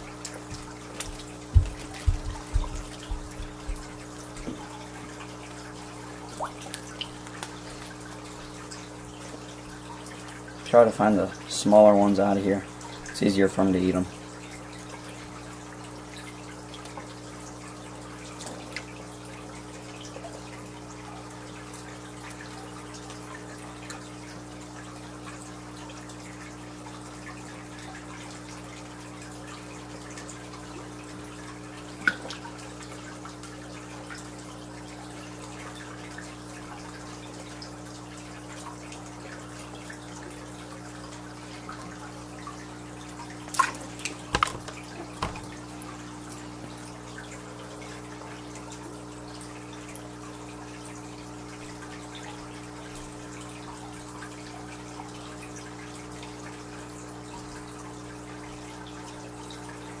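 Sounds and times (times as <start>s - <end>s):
low electrical hum: 0.0s - 60.0s
water dripping and trickling: 0.0s - 60.0s.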